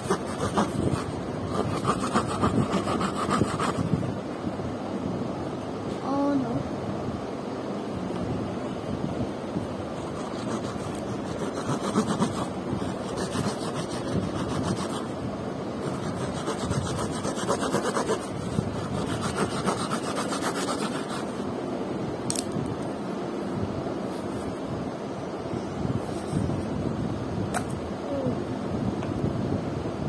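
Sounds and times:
cardboard rubbing and scraping: 0.0s - 4.0s, 9.9s - 15.2s, 15.8s - 21.5s.

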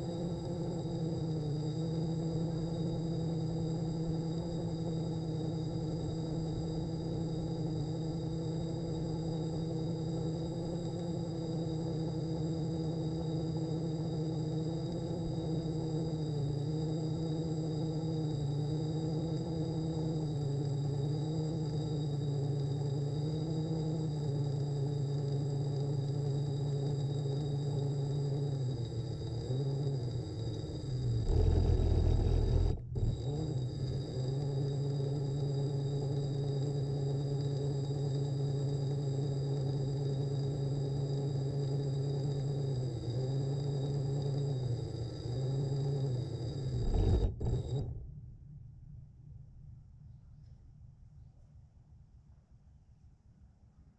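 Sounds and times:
small electric motor whining: 28.4s - 36.2s, 43.2s - 48.1s.

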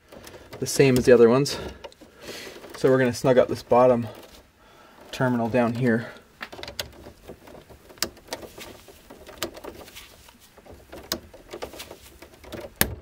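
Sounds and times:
gloved hand scraping on tool: 7.0s - 12.8s.

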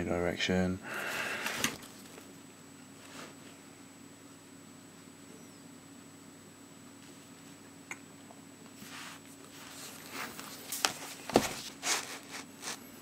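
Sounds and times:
faint steady hum: 0.0s - 13.0s
paper rustling and scraping: 8.8s - 12.8s.

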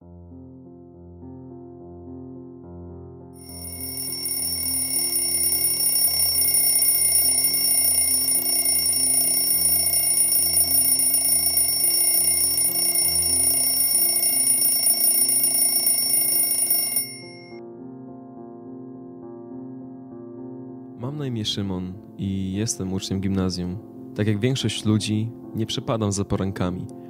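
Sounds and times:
mechanical alarm clock ringing: 3.4s - 17.6s.

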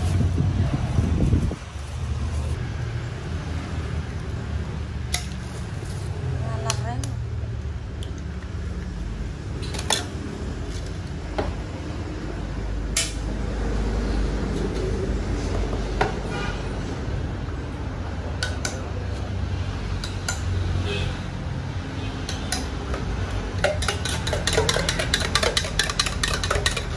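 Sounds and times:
metal utensils clinking: 23.6s - 26.9s.

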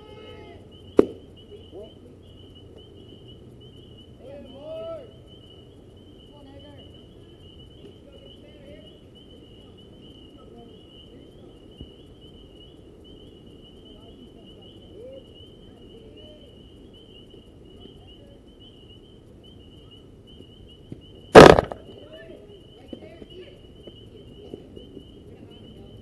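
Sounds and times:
night insects chirping: 0.0s - 26.0s
loud sharp crack: 1.0s - 1.2s, 21.3s - 22.0s.

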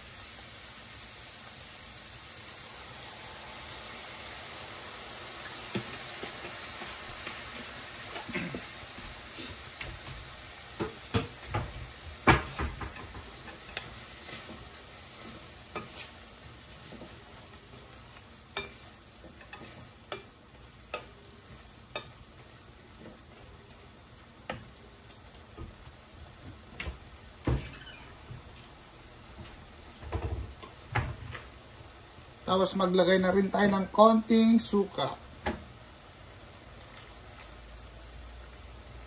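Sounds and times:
clams sizzling: 0.0s - 39.0s
wooden spatula scraping a pan: 5.7s - 23.4s.

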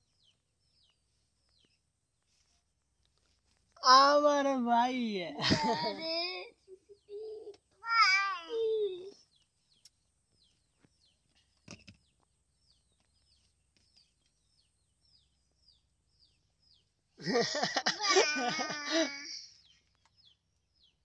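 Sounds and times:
small bird chirping: 0.0s - 4.0s, 5.4s - 17.5s, 18.4s - 21.0s
high-pitched voice: 5.9s - 9.2s.

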